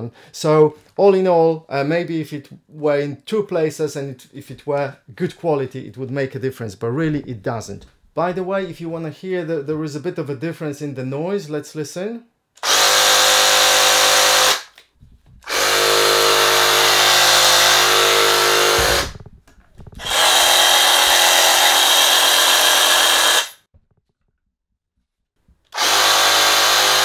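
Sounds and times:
reciprocating saw running unloaded: 15.5 - 19.3, 19.9 - 23.6.

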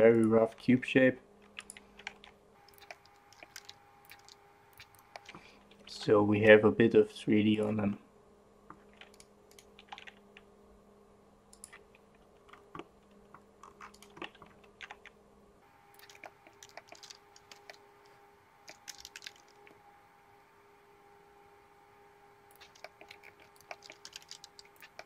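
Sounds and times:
low electrical hum: 0.0 - 25.0
keyboard and mouse clicking: 1.5 - 5.4, 8.7 - 10.5, 11.5 - 15.2, 15.9 - 17.8, 18.7 - 19.7, 22.5 - 25.0.

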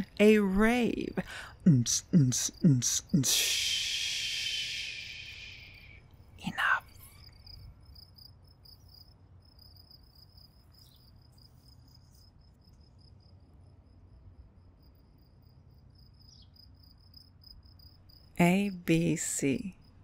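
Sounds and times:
low steady hum: 0.0 - 9.8
faint high-pitched chirping: 4.8 - 13.2, 14.9 - 18.5.

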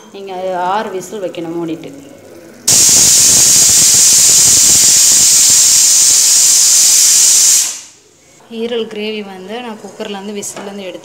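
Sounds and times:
pressure cooker whistling steam: 2.7 - 8.0.

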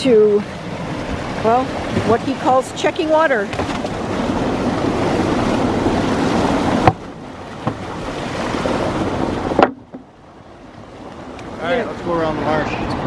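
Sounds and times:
wind on microphone: 0.0 - 10.1
water rushing through bulkhead: 0.0 - 13.0.

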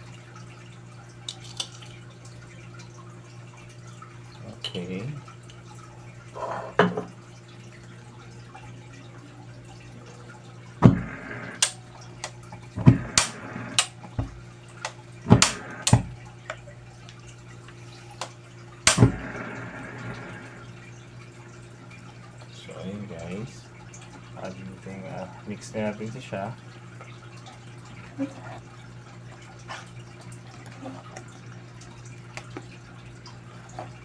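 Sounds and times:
steady low hum: 7.5 - 26.6.

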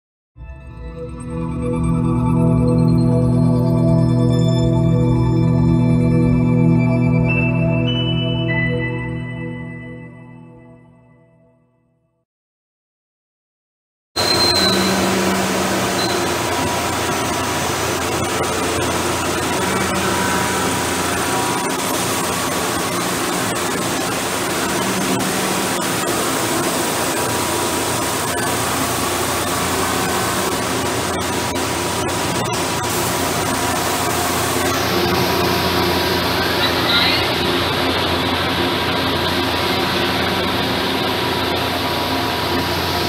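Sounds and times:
machinery humming: 14.2 - 43.0.

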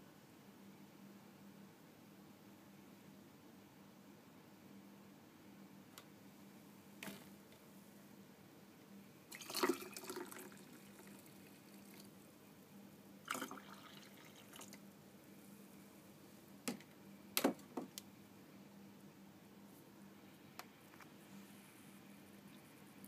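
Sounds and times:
liquid pouring into mug: 9.3 - 12.0, 13.3 - 14.8.

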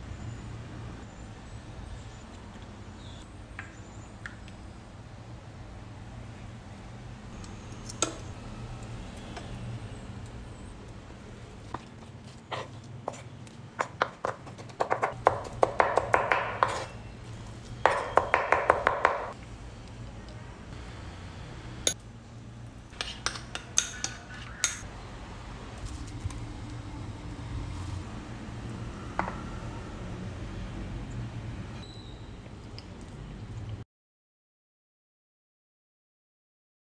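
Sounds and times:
knife chopping on wooden board: 13.8 - 16.9.

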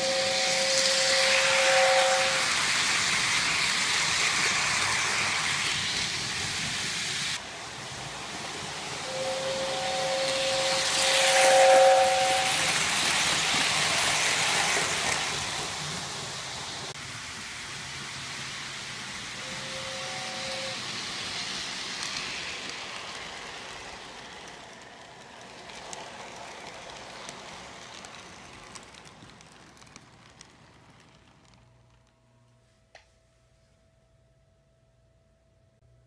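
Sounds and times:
two-note train whistle: 0.0 - 2.8, 8.9 - 13.0, 19.4 - 21.5
model train wheels rumbling: 0.0 - 32.3.

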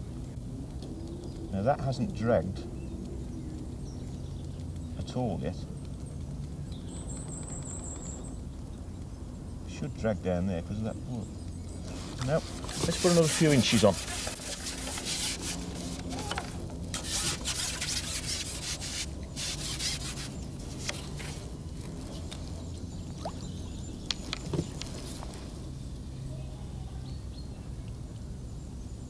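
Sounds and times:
outdoor background noise: 0.0 - 29.0
rubbing and rustling: 11.8 - 22.7.

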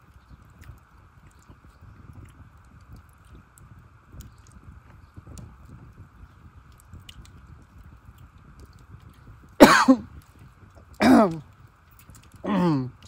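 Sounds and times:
man chewing: 0.1 - 9.6, 10.2 - 13.0
man coughing: 9.6 - 10.0, 11.0 - 11.4.

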